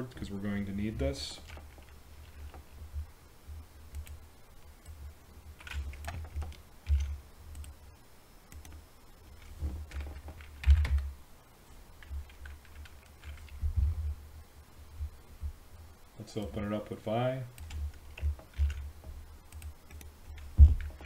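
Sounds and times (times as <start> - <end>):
dull low thuds: 13.6 - 14.2, 20.5 - 20.9.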